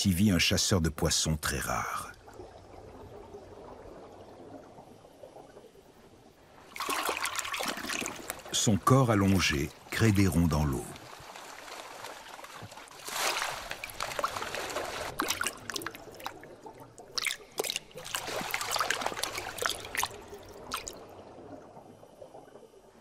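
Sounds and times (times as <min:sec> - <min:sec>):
water trickling and splashing: 0:00.7 - 0:23.0.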